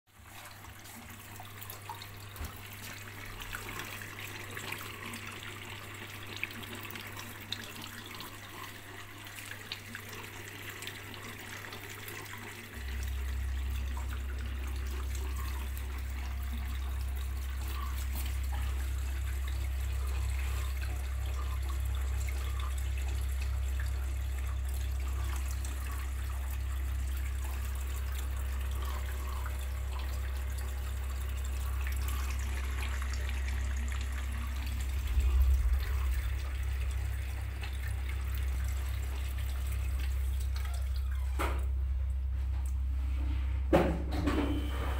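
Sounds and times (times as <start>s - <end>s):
water rushing in washing machine: 0.1s - 44.9s
loud low hum: 31.1s - 40.5s.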